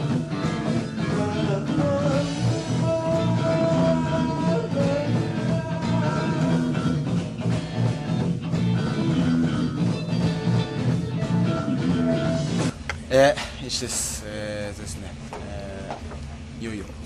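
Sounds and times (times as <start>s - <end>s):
rock band playing: 0.0s - 12.8s.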